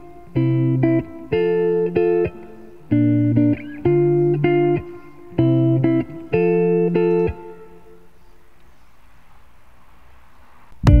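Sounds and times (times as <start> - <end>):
guitar chords strumming: 0.0 - 8.1.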